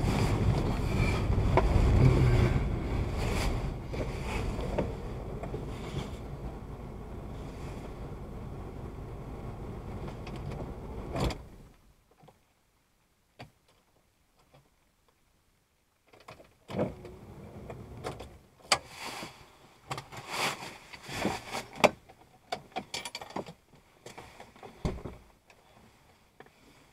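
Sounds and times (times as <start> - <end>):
clicks and knocks inside car: 0.1 - 6.2, 21.1 - 25.3.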